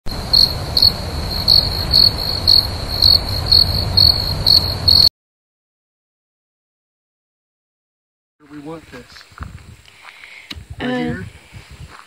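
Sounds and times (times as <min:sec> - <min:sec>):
insects trilling: 0:00.1 - 0:05.1
low rumble: 0:00.1 - 0:05.1.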